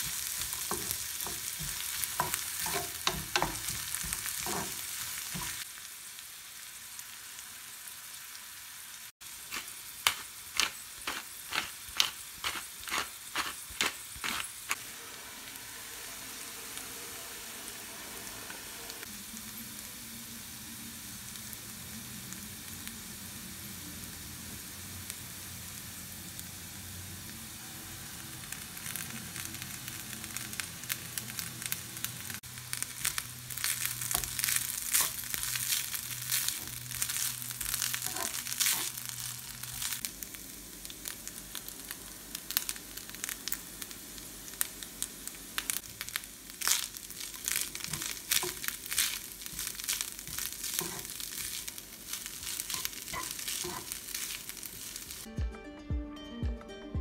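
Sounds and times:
wooden spatula scraping pan: 0.0 - 5.6, 50.7 - 51.2, 52.7 - 54.0
vegetables sizzling in oil: 0.0 - 55.3.

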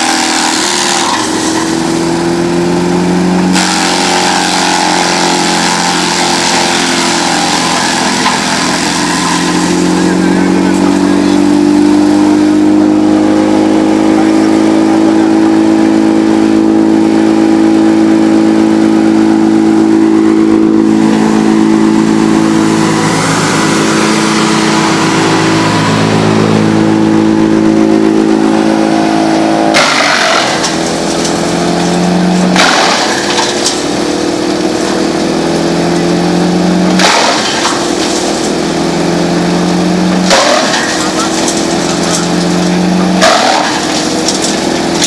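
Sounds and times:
wood chipper engine running: 0.0 - 45.0
log being chipped bursts: 3.5 - 10.1, 29.6 - 35.7, 36.8 - 38.6, 40.2 - 45.0.

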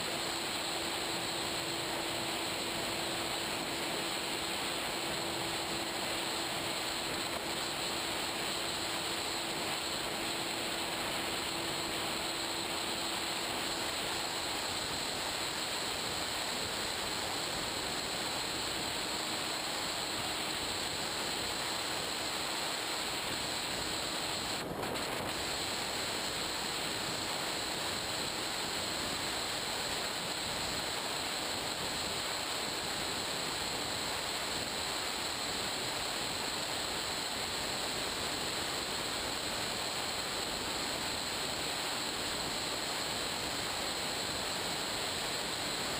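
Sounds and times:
faint high whine: 0.0 - 45.9.

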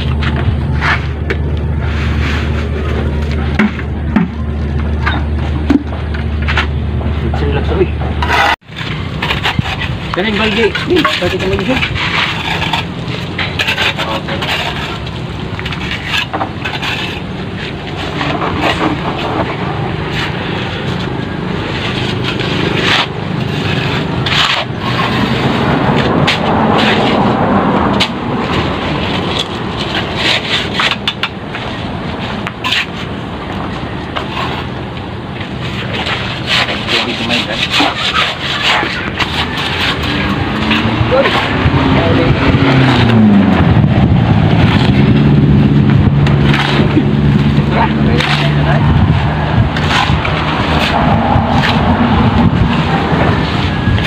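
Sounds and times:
trowels scraping and knocking: 0.0 - 54.0
voices: 36.5 - 43.2, 46.5 - 54.0.

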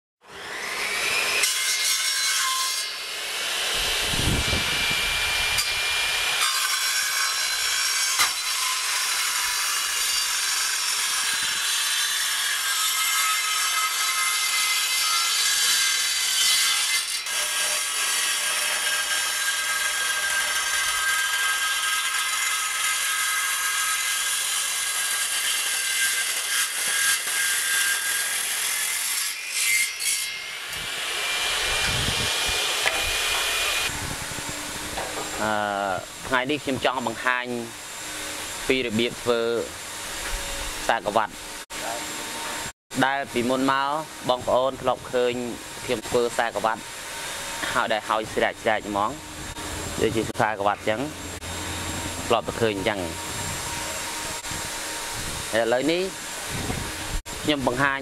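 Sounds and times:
table saw ripping wood: 0.3 - 41.9.

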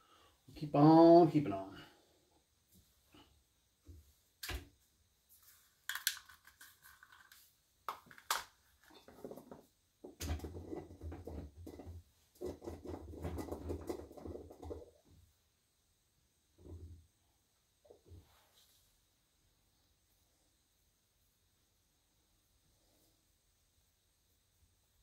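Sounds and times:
rubbing and rustling: 5.2 - 15.1.

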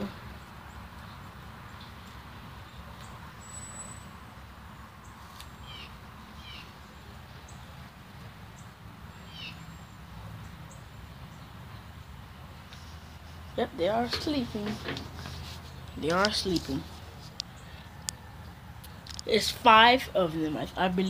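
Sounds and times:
bird chirps: 0.0 - 7.8, 8.6 - 11.9.

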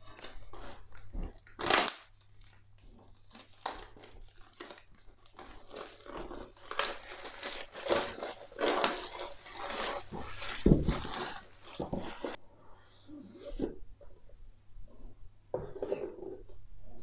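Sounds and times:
shrink wrap crinkling and tearing: 0.0 - 12.4.

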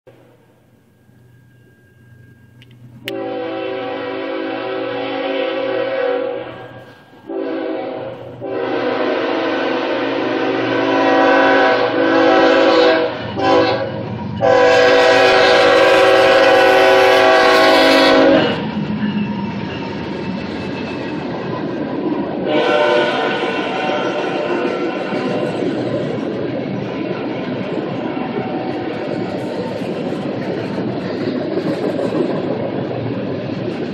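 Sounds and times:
train rumbling and clattering: 0.1 - 33.9
locomotive air horn blasts: 3.0 - 18.7, 22.4 - 25.7.

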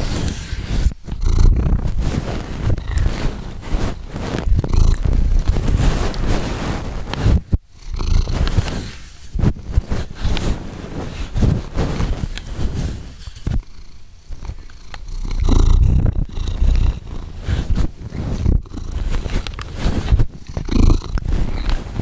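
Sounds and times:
cat breathing: 0.0 - 22.0
cat purring: 0.0 - 22.0
small mouth and nose clicks: 4.4 - 6.3, 14.4 - 21.9.

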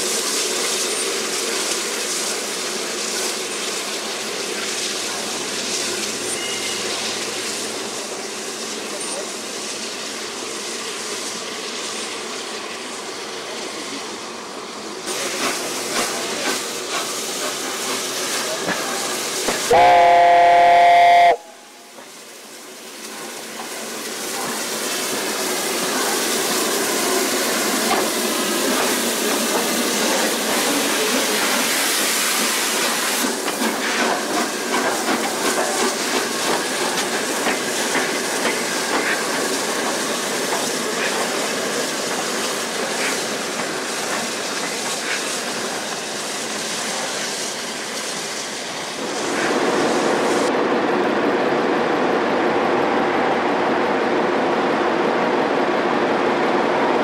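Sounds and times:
steam locomotive hissing steam: 0.0 - 50.5
locomotive exhaust and running noise: 0.1 - 24.8
steam whistle blast: 19.5 - 21.9.

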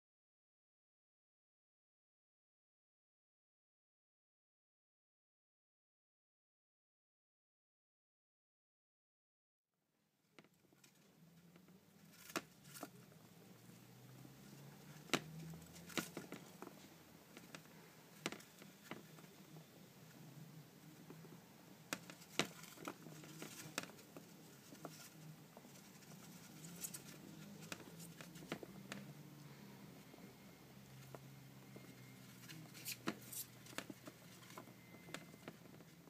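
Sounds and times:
low steady hum: 10.3 - 36.0
hamsters scrabbling in sand: 21.9 - 29.0, 31.0 - 36.0.

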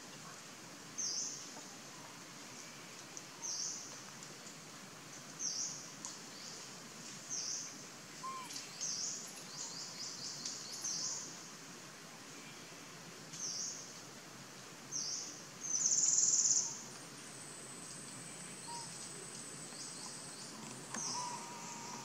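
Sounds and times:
steady background hiss: 0.0 - 22.0
bird giving high-pitched calls: 8.2 - 8.5.

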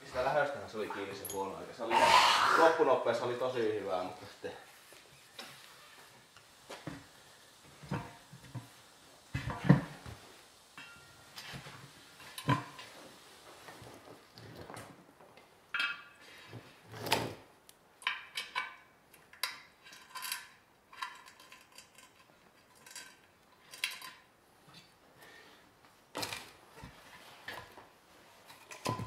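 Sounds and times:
air hose rush: 1.9 - 3.0
metal wheel clinks and knocks: 28.6 - 29.0.

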